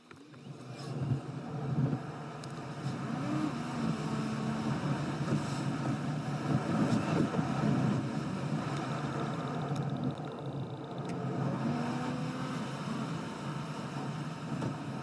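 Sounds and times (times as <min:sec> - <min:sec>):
car engine and tyre noise: 0:00.0 - 0:15.0.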